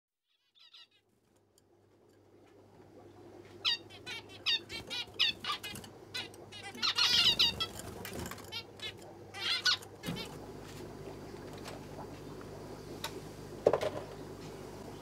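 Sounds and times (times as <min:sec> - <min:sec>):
finches chirping: 0:00.3 - 0:01.1, 0:03.6 - 0:10.4
low steady hum: 0:00.4 - 0:15.0.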